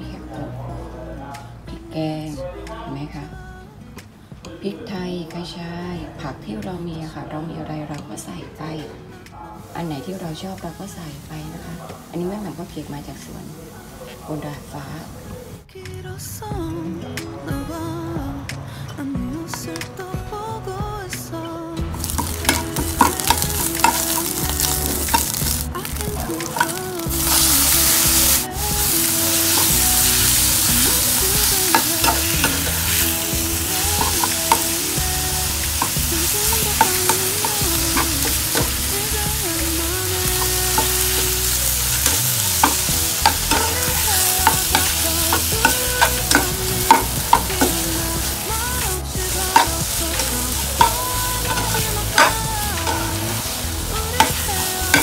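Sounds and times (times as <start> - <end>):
food sizzling in oil: 21.8 - 55.0.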